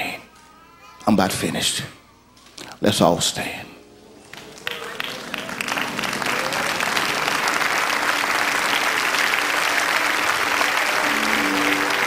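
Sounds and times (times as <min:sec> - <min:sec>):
crowd applauding: 0:04.2 - 0:12.0.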